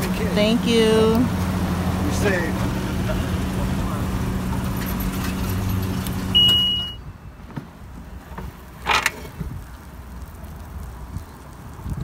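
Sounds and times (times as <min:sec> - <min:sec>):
car low hum: 0:00.0 - 0:11.4
high electronic beep: 0:06.4 - 0:07.0.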